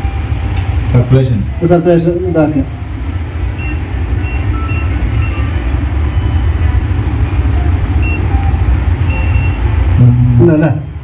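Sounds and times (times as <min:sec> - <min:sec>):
steady low rumble: 0:00.0 - 0:11.0
short electronic beeps: 0:03.6 - 0:06.6, 0:07.5 - 0:09.8.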